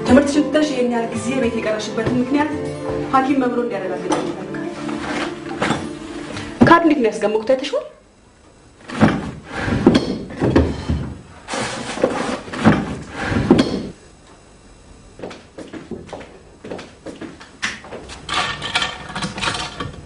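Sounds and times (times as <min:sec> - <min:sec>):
wooden drawers and doors banging: 0:08.9 - 0:11.2, 0:12.0 - 0:13.9, 0:18.0 - 0:20.0.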